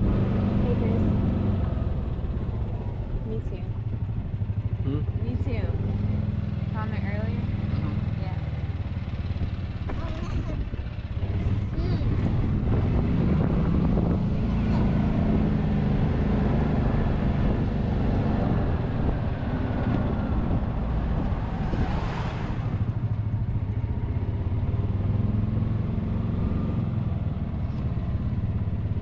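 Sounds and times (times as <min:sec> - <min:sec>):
passing vehicle whoosh: 0:00.0 - 0:09.9, 0:10.6 - 0:29.0
road and wind noise: 0:00.0 - 0:29.0
golf cart motor running: 0:07.6 - 0:12.8.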